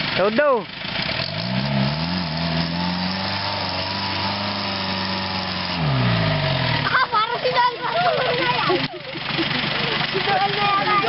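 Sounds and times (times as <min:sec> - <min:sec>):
engine revving hard: 0:01.0 - 0:08.8
tyres churning mud: 0:01.2 - 0:11.0.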